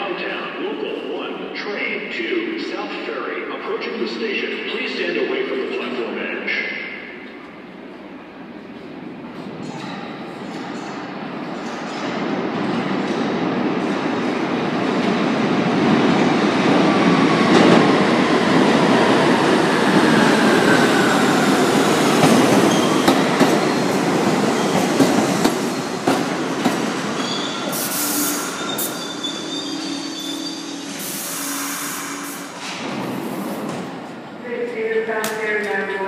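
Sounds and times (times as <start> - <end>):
train wheels rumbling on rails: 8.6 - 34.4
wheel and brake squeal: 27.2 - 32.4.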